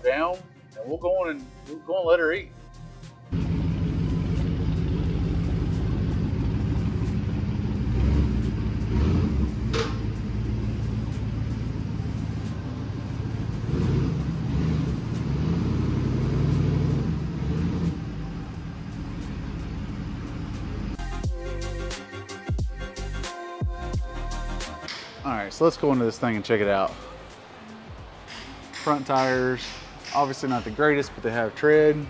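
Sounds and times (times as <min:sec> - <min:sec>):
pickup truck engine running: 0:03.3 - 0:15.6, 0:16.4 - 0:21.1.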